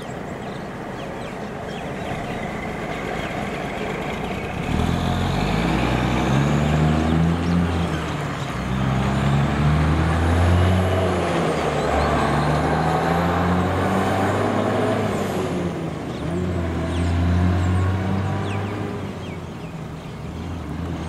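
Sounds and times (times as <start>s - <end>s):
truck diesel engine accelerating: 0.0s - 21.0s.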